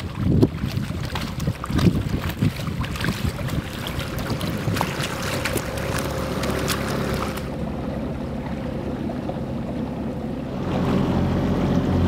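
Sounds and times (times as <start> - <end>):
wind buffeting microphone: 0.0 - 7.6
water lapping: 0.0 - 10.9
outboard motor running: 0.0 - 12.0.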